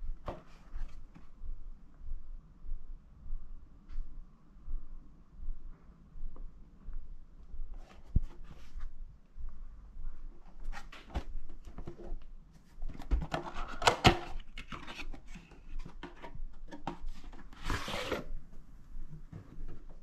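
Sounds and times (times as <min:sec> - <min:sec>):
cardboard box rubbing and scraping: 0:17.4 - 0:18.3.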